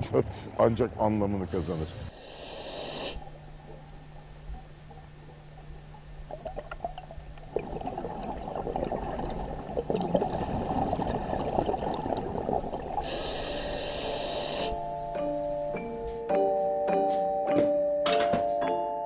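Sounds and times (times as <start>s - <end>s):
high hiss: 1.4s - 3.4s, 13.0s - 15.0s
low hum: 3.2s - 16.2s
underwater bubbles rushing: 3.3s - 13.8s.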